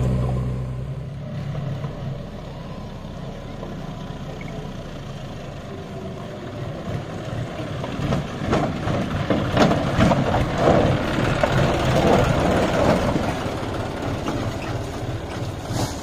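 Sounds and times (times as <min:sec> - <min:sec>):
tractor diesel engine running: 0:00.0 - 0:16.0
knocks and rattles: 0:06.8 - 0:16.0.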